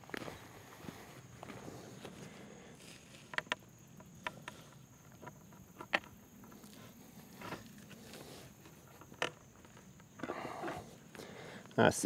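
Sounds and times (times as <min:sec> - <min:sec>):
wooden tripod leg knocking: 0:03.2 - 0:07.9.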